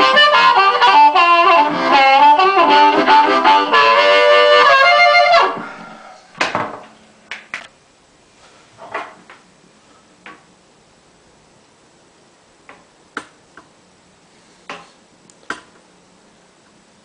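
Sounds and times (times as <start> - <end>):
amplified harmonica playing: 0.0 - 6.0.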